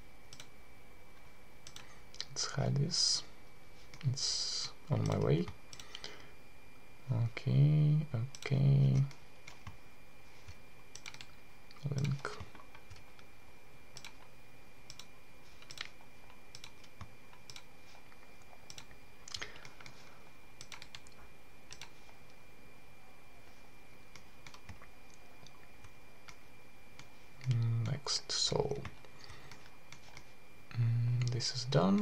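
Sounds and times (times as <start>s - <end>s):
faint high-pitched whine: 0.0s - 32.0s
mouse and keyboard clicks: 10.4s - 13.3s, 14.9s - 20.0s.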